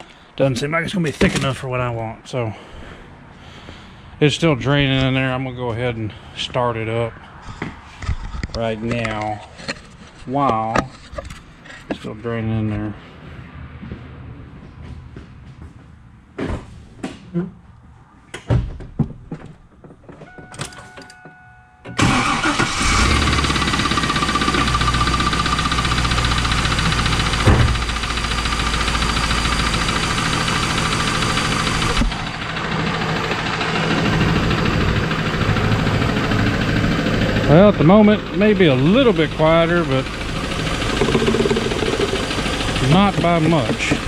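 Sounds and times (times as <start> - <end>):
car engine cranking and idling: 22.0 - 44.0
engine knock: 23.2 - 44.0
clunks and clicks: 40.9 - 44.0.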